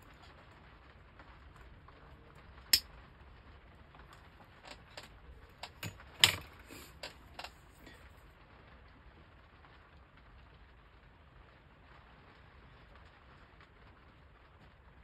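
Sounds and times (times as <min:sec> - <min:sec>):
hobby tools clicking on workbench: 0:04.7 - 0:07.6.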